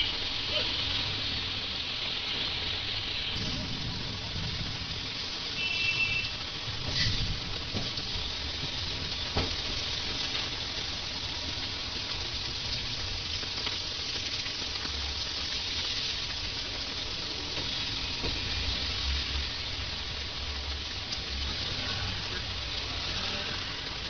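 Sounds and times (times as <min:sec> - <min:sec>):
heavy rain pouring on road: 0:00.0 - 0:24.0
low rumble: 0:03.3 - 0:05.4.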